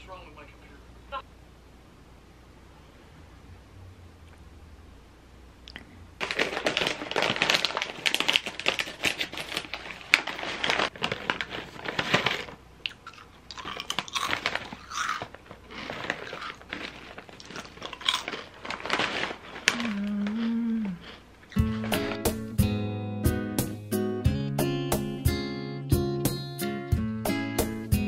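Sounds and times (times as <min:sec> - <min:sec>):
chewing and crunching snack: 0:05.7 - 0:22.2
scissors cutting plastic bag: 0:06.2 - 0:12.6, 0:13.6 - 0:20.4
snack bag crinkling: 0:06.2 - 0:22.3.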